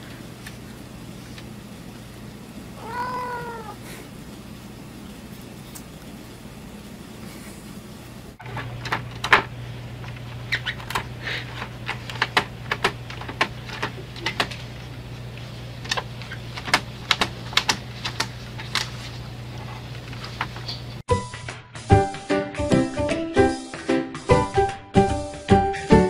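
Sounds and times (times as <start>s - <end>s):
printer humming: 4.2s - 21.0s
printer clicking and tapping: 10.8s - 14.7s, 15.8s - 18.9s.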